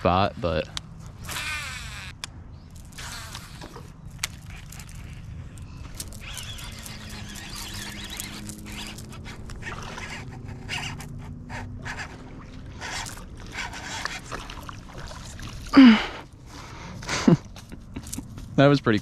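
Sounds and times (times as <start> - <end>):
fish splashing at water surface: 6.0 - 15.8.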